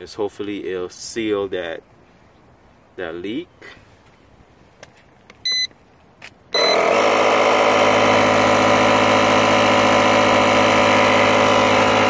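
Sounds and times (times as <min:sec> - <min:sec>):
electronic beep: 0:05.4 - 0:05.7, 0:06.5 - 0:06.8
air compressor running: 0:06.6 - 0:12.0.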